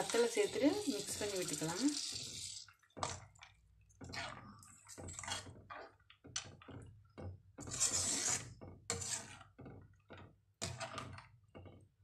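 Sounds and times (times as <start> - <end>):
metal ladle scraping pan: 4.0 - 5.9, 7.6 - 9.6, 10.6 - 11.2.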